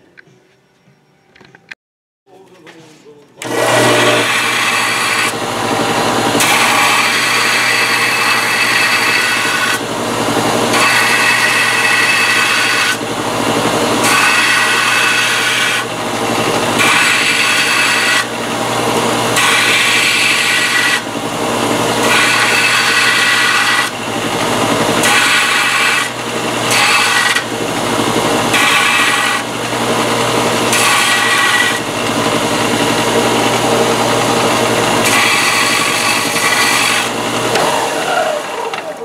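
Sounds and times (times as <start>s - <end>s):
belt sander running: 3.4s - 39.0s
sander grinding sheet steel: 3.4s - 39.0s.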